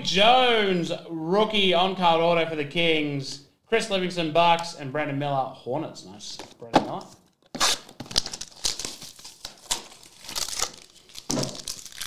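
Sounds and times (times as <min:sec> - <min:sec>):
foil wrapper crinkling: 0:07.9 - 0:12.0.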